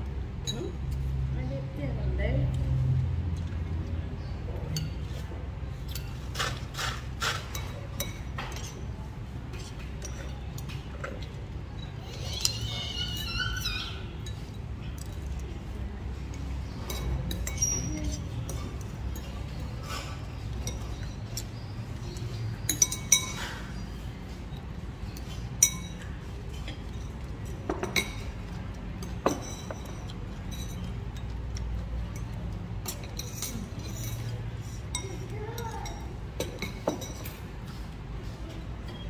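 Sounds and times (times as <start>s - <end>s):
spoon and chopsticks clinking bowl: 4.7s - 5.2s, 5.9s - 8.9s, 9.5s - 13.3s, 16.3s - 23.8s, 24.5s - 37.4s.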